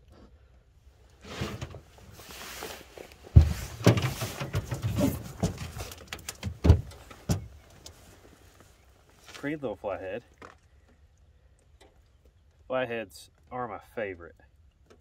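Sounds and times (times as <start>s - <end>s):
handling knocks and rustling: 1.1s - 9.6s
heavy thump: 3.3s - 7.5s.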